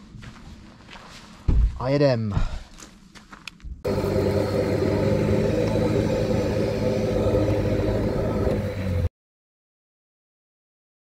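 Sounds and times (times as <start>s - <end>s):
pickup engine and road noise: 3.8s - 9.1s.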